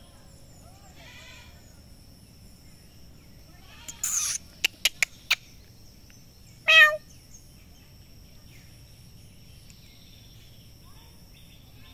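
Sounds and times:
outdoor background noise: 0.0s - 11.9s
short high animal call: 6.7s - 7.0s.

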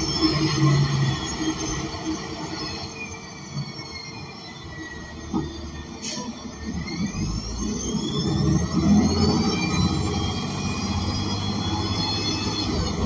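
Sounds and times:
bus drivetrain whine: 0.0s - 13.0s.

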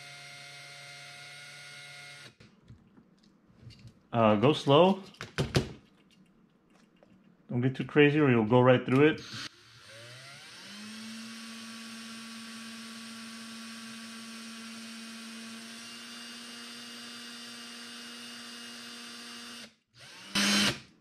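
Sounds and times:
cordless drill motor whine: 0.0s - 2.4s, 9.2s - 20.8s.

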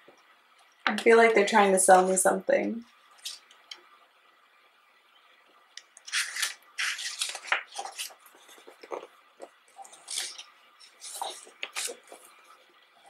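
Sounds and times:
pages turning: 6.0s - 12.5s.

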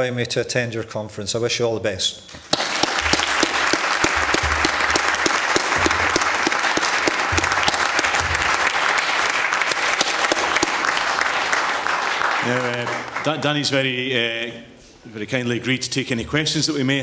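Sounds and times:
audience applauding: 2.4s - 13.9s.

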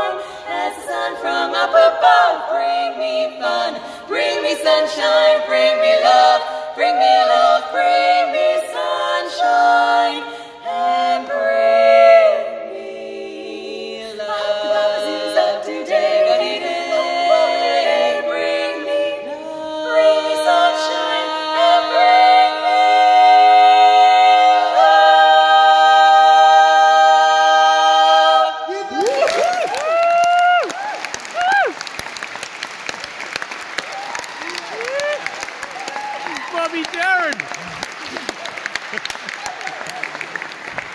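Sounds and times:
female quartet singing a cappella: 0.0s - 28.9s.

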